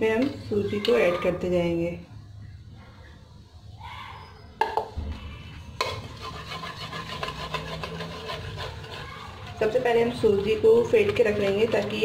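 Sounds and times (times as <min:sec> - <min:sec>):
whisk scraping in a bowl: 0:05.8 - 0:12.0.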